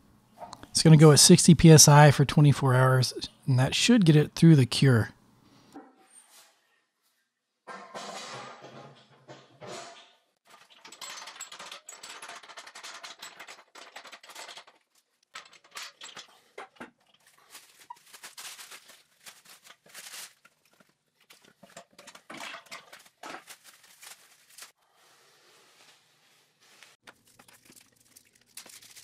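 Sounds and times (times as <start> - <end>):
plastic bag crinkling: 17.0 - 21.7, 22.4 - 24.8, 27.0 - 29.0.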